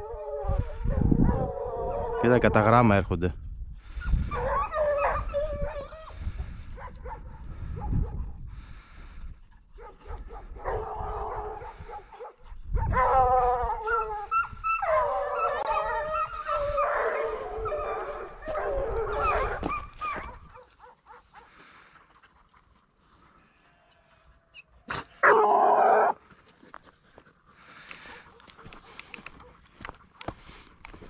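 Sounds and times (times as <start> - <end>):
hounds baying: 4.0 - 8.9, 9.6 - 26.3.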